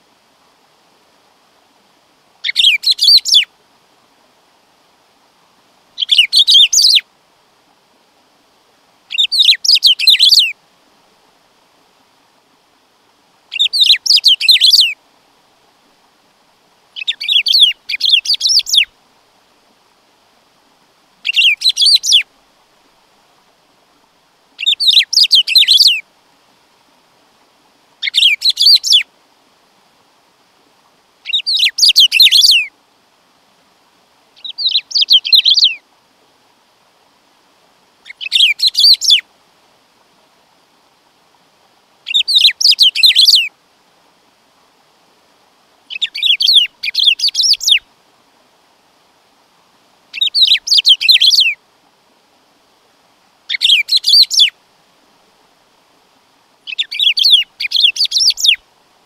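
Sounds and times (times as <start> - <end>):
bird singing jumbled phrases: 2.4 - 3.5, 6.0 - 7.1, 9.1 - 10.6, 13.5 - 15.0, 17.0 - 18.9, 21.2 - 22.3, 24.6 - 26.0, 28.0 - 29.1, 31.2 - 32.7, 34.4 - 35.8, 38.0 - 39.2, 42.0 - 43.5, 45.9 - 47.9, 50.1 - 51.6, 53.5 - 54.6, 56.6 - 58.6.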